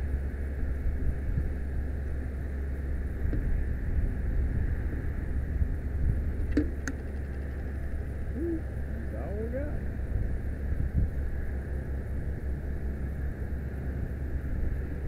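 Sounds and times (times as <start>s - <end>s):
truck engine running: 5.0s - 10.6s
wind on microphone: 9.7s - 11.4s.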